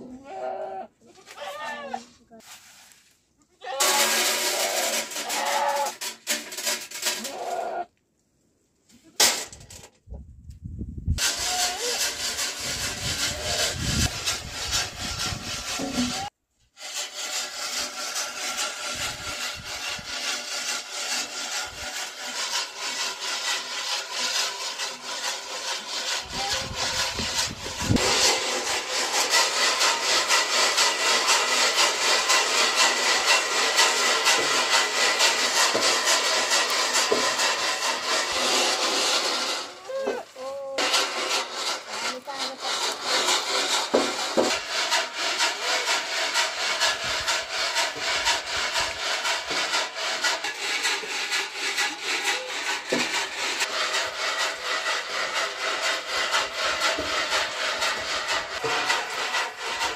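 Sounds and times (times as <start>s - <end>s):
kernels rattling in metal box: 3.8s - 7.6s, 9.2s - 9.9s, 21.4s - 39.8s, 40.8s - 59.9s.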